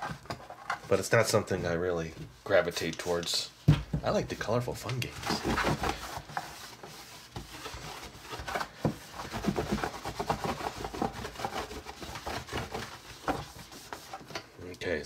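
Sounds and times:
paper towel scrubbing plastic tray: 0:00.8 - 0:14.4.

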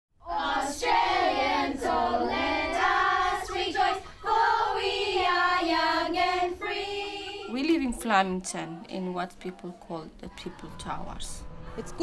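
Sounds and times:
children singing together: 0:00.2 - 0:07.5.

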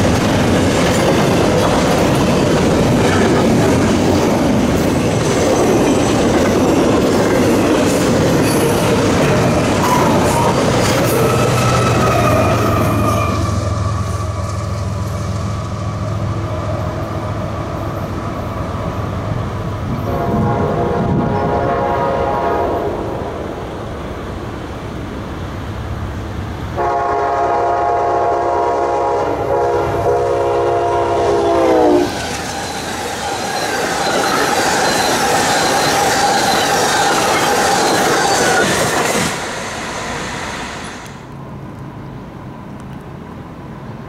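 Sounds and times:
train wheels clattering on rails: 0:00.0 - 0:20.2, 0:32.0 - 0:41.2
train horn: 0:20.0 - 0:23.3, 0:26.8 - 0:32.2.

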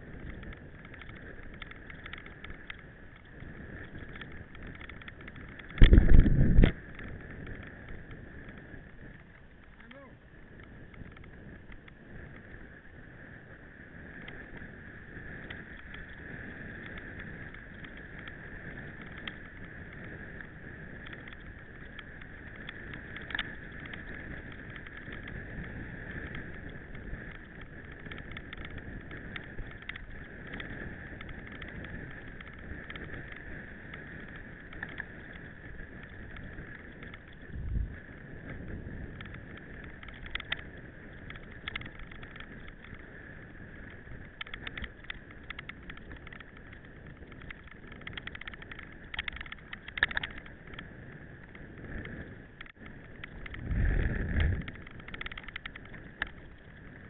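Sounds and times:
bike rolling rattle: 0:00.0 - 0:57.0.

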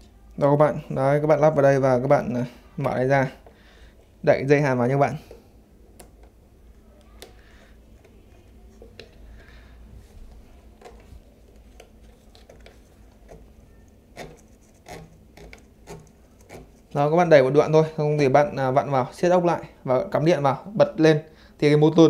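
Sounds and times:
welding wire feed clicks and rubbing: 0:10.3 - 0:17.0.

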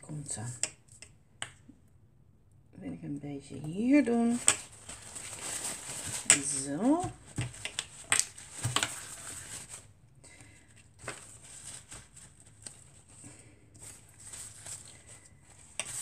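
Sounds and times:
paper rustling and sliding: 0:04.3 - 0:09.9, 0:10.9 - 0:16.0.

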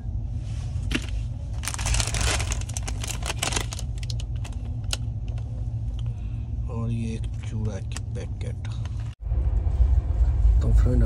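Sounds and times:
train rumble: 0:00.0 - 0:11.0
plastic packets crinkling: 0:00.9 - 0:05.4.

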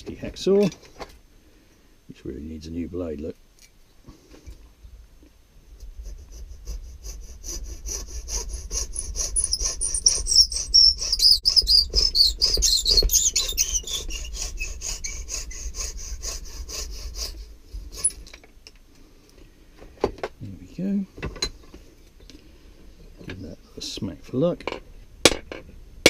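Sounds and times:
hacksaw cutting wood: 0:06.6 - 0:18.1.

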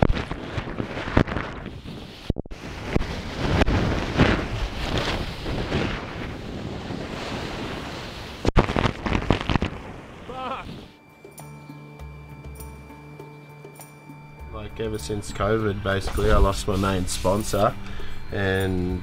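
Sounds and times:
wind gusting on microphone: 0:00.0 - 0:11.0
ocean waves crashing: 0:00.0 - 0:11.1.

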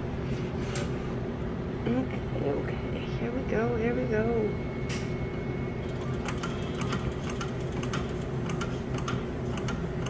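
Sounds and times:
steady low hum: 0:00.0 - 0:10.0
slot machine reels clicking: 0:05.8 - 0:10.0.

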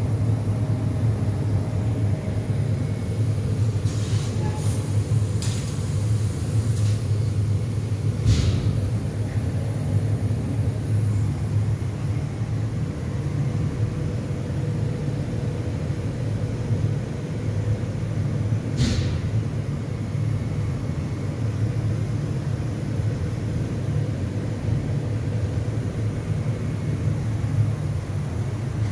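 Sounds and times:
laser cutting machine humming: 0:00.0 - 0:14.6.

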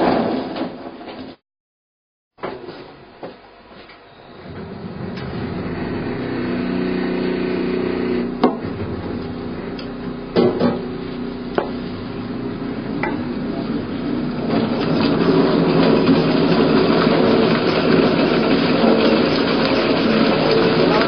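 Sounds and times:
grape crusher machine humming: 0:04.2 - 0:21.0
sharp knocks: 0:08.4 - 0:09.4.

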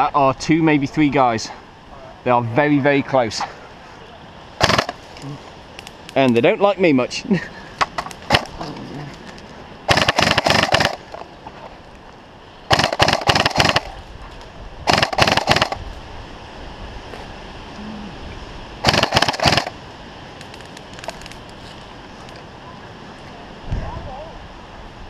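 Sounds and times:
airsoft gun bursts: 0:04.6 - 0:05.0, 0:09.9 - 0:11.1, 0:12.7 - 0:13.9, 0:14.9 - 0:15.8, 0:18.8 - 0:19.8.

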